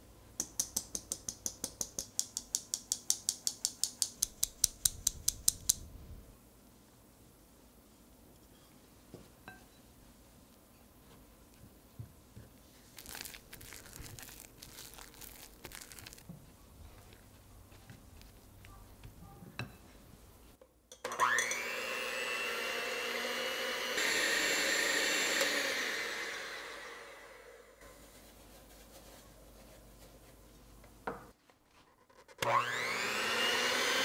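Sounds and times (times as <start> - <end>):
electric hand mixer whirring: 21.1 - 27.7, 32.4 - 34.0.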